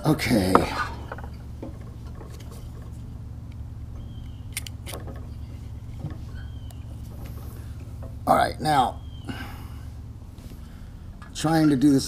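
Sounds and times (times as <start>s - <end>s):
steady low hum: 0.0s - 12.0s
light strip clicks and rustles: 4.2s - 8.2s.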